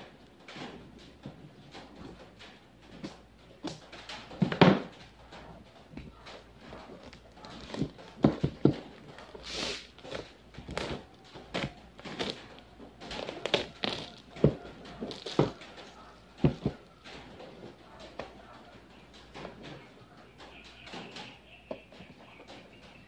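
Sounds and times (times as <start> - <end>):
plastic packaging crinkling: 6.2 - 17.7.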